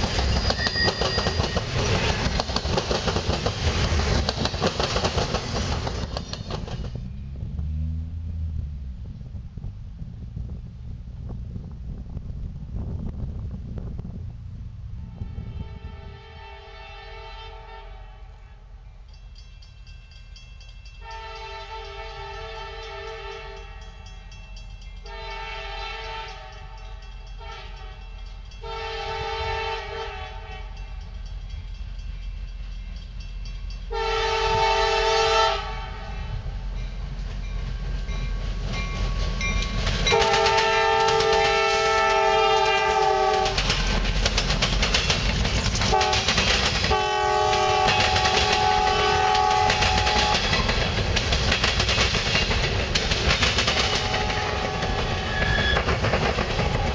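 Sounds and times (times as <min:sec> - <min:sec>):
low engine rumble: 0:05.7 - 0:16.4
locomotive air horn blasts: 0:15.0 - 0:18.7, 0:21.0 - 0:23.8, 0:25.0 - 0:26.8, 0:27.4 - 0:30.8, 0:33.9 - 0:36.4, 0:40.1 - 0:43.6, 0:45.9 - 0:46.3, 0:46.9 - 0:50.6, 0:53.8 - 0:55.5.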